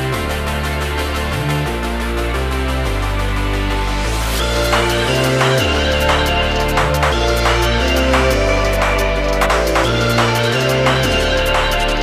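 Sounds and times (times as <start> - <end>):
deep sustained bass notes: 0.0 - 12.0
percussion hits: 4.4 - 12.0.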